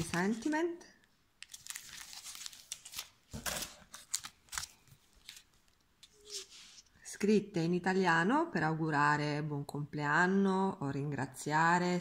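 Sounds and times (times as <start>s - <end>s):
plastic packets crinkling: 0.0s - 0.7s, 1.4s - 5.8s.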